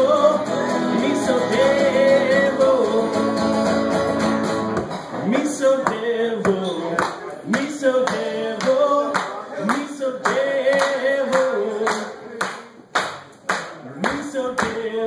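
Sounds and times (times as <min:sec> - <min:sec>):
man singing wordless notes: 0:00.0 - 0:03.7, 0:05.2 - 0:12.7, 0:13.8 - 0:15.0
sharp rhythmic claps: 0:05.8 - 0:15.0.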